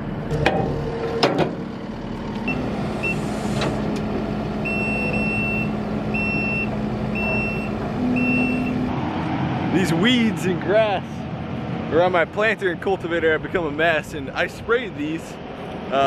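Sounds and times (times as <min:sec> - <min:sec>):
track loader engine running: 0:00.0 - 0:09.7
reversing alarm beeping: 0:02.5 - 0:03.5, 0:04.6 - 0:08.9.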